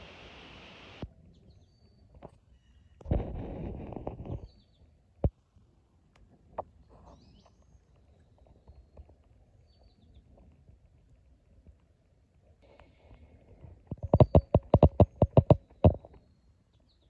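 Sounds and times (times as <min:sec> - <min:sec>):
faint bird chirps: 0:01.3 - 0:03.1, 0:12.6 - 0:17.0
sharp knock: 0:14.2 - 0:16.0.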